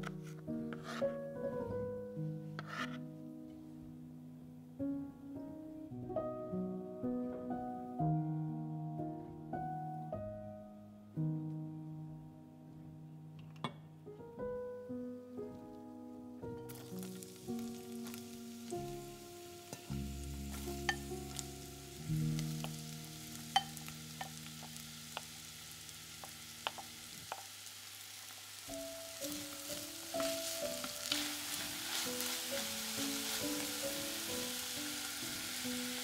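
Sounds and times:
soft background music: 0.0 - 27.0, 28.6 - 36.0
wooden spoon stirring: 0.7 - 1.0, 16.7 - 21.7, 29.2 - 34.2
onion sizzling in hot oil: 16.6 - 36.0.

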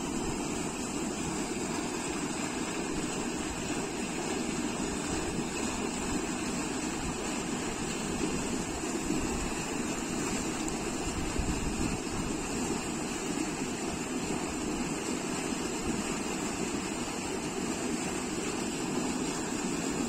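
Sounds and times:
water rushing over rocks: 0.0 - 20.0.

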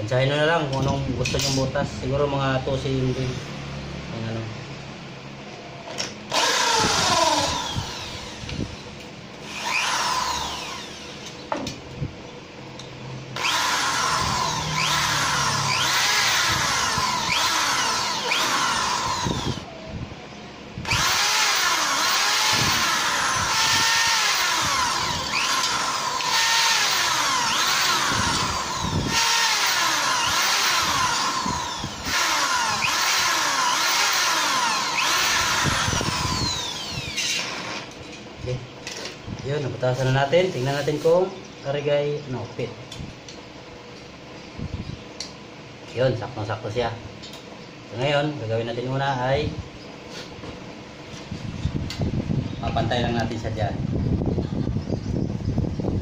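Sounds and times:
electric drill drilling metal: 6.3 - 11.4, 13.4 - 19.7, 20.8 - 38.0.

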